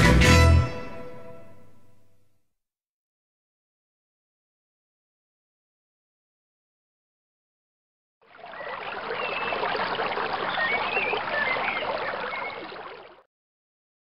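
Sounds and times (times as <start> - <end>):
running water: 8.2 - 13.3
faint high chirps: 8.4 - 13.2.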